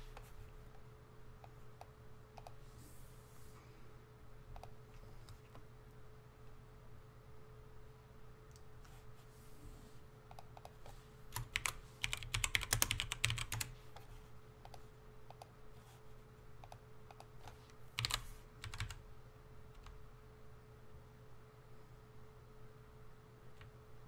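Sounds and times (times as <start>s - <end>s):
faint steady hum: 0.0s - 24.0s
typing on computer keyboard: 10.3s - 13.7s, 16.6s - 19.0s.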